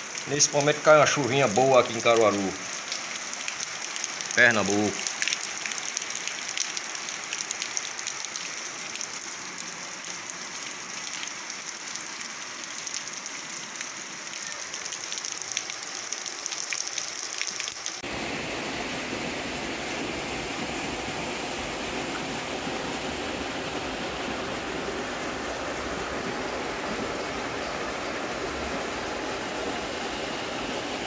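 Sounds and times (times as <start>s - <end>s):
rain falling on pavement: 0.0s - 18.1s.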